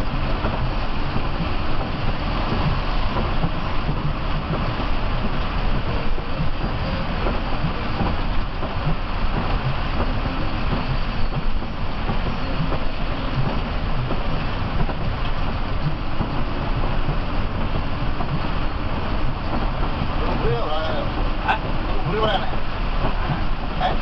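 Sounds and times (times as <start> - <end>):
diesel engine running: 0.0 - 24.0
road and rain noise: 0.0 - 24.0.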